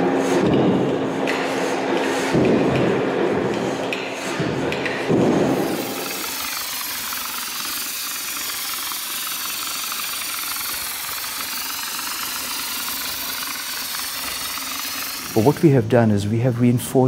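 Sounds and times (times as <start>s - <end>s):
spray gun hissing: 5.4s - 16.2s.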